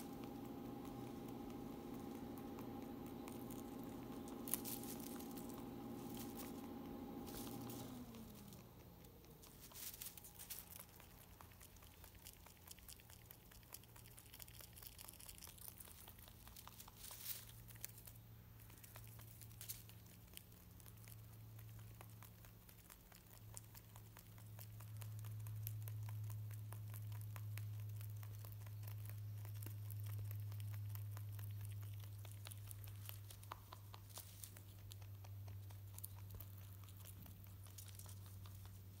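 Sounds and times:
low hum: 0.0s - 13.0s
rabbit chewing hay: 0.0s - 39.0s.

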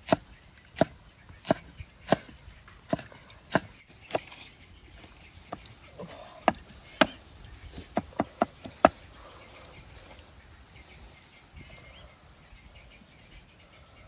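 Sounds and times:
cleaver chopping on wooden block: 0.0s - 4.3s, 7.9s - 9.0s.

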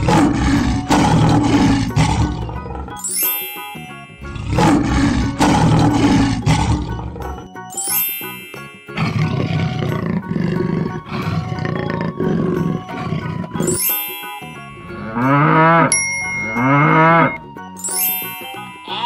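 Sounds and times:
big cat roaring growl: 0.0s - 3.0s, 4.3s - 7.4s, 9.0s - 13.7s, 15.0s - 15.9s
bell ding: 3.0s - 4.5s, 7.7s - 9.3s, 13.7s - 15.2s, 15.9s - 19.0s
bell ringing steadily: 3.0s - 4.6s, 7.6s - 9.7s, 13.6s - 19.0s
cow mooing: 4.3s - 7.4s, 9.0s - 13.7s, 14.9s - 17.4s.

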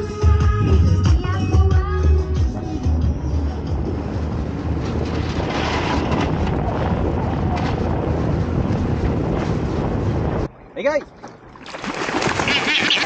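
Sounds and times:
wind buffeting microphone: 0.0s - 12.5s
water rushing past hull: 11.5s - 13.0s.

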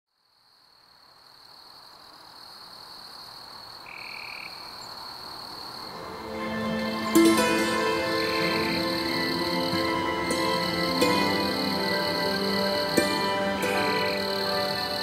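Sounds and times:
frogs calling: 0.8s - 15.0s
steady high-pitched note: 6.2s - 15.0s.

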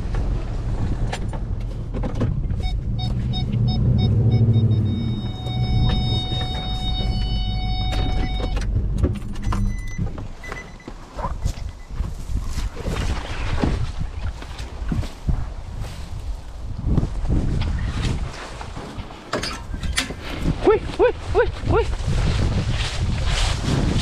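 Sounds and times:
pickup truck engine: 0.0s - 11.4s
weeds scraping against truck body: 0.1s - 7.4s, 11.0s - 20.9s, 21.6s - 24.0s
quick electronic beeps: 2.6s - 8.6s
steady electronic tone: 2.6s - 8.6s.

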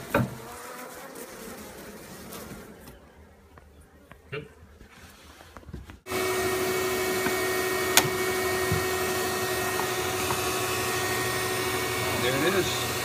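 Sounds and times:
vacuum running with whining tones: 6.1s - 13.0s.

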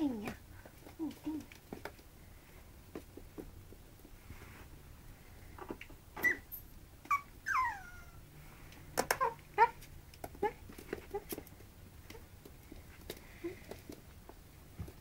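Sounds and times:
puppies whimpering and yipping: 6.2s - 8.2s
puppy yelps: 6.2s - 8.2s.

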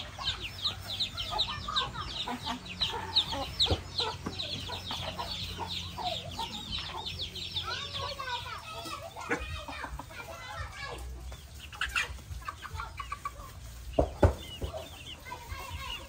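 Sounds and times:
chicken clucking: 0.0s - 16.0s
chicks peeping: 0.0s - 16.0s
knock: 14.0s - 14.8s.

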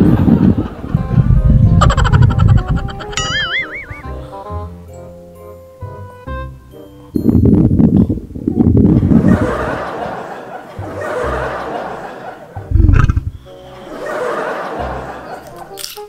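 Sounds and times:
laughter: 0.0s - 1.0s, 1.7s - 4.0s, 9.0s - 12.8s, 13.6s - 15.8s
comic fart sound effects: 1.7s - 4.2s, 12.7s - 13.5s.

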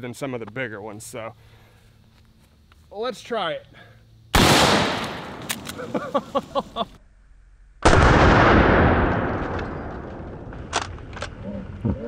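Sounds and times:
rifle shots: 4.4s - 5.8s, 7.8s - 10.9s.

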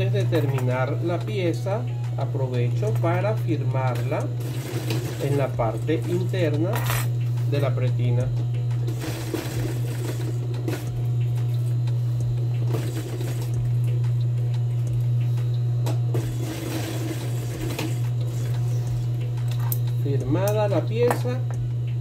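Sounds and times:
sewing machine motor humming: 3.8s - 6.6s, 7.3s - 21.0s.

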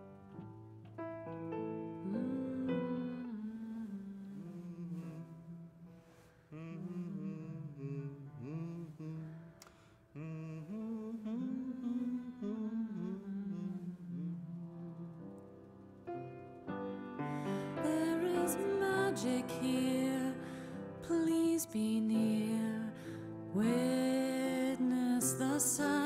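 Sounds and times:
man humming a slow tune: 2.0s - 5.8s, 6.5s - 15.4s.

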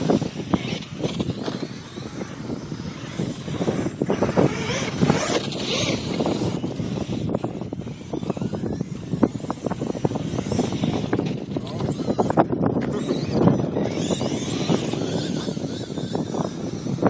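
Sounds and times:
rc truck churning through sand: 0.0s - 17.0s
wind buffeting microphone: 0.0s - 17.0s.

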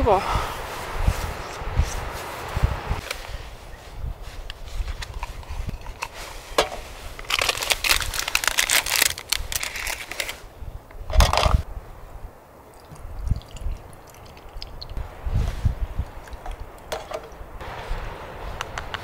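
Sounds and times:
plastic cup crinkling: 4.8s - 10.4s.

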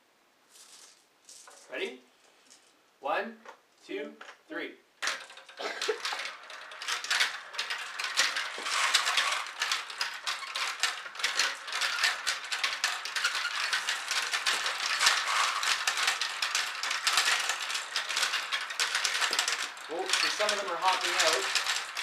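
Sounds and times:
marbles clattering down plastic run: 5.0s - 22.0s.

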